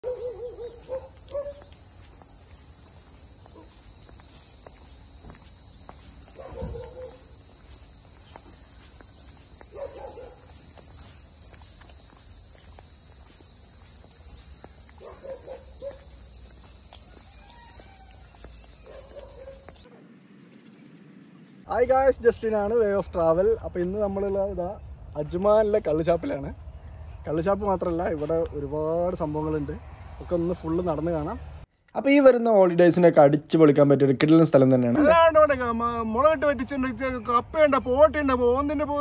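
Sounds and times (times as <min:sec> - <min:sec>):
faint footsteps: 0:00.0 - 0:21.7
insects droning: 0:00.0 - 0:39.0.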